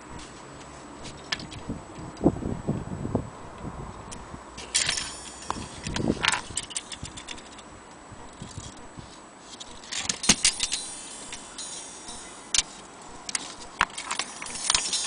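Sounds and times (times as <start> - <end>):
metallic clock clicks and clinks: 4.6 - 7.6, 9.8 - 15.0.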